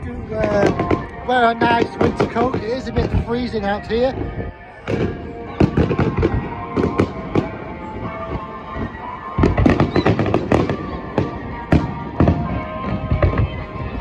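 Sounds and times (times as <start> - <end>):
fireworks bangs and crackles: 0.0 - 14.0
music playing: 0.0 - 14.0.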